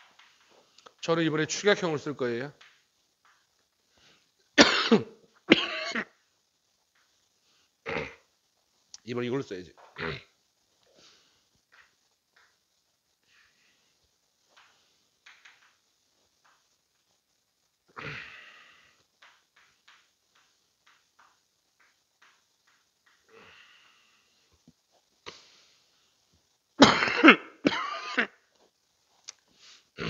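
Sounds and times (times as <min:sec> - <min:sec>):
breath: 0:03.9 - 0:04.3, 0:10.9 - 0:11.5, 0:23.3 - 0:24.4, 0:29.5 - 0:29.9
man coughing: 0:04.6 - 0:06.1, 0:26.8 - 0:28.3.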